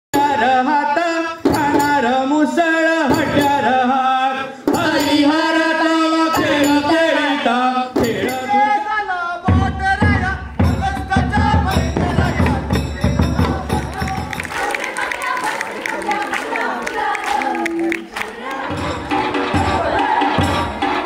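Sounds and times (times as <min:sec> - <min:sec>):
percussion: 0:00.1 - 0:21.0
voices singing folk song: 0:00.2 - 0:21.0
heavy low drum beat: 0:09.5 - 0:14.4.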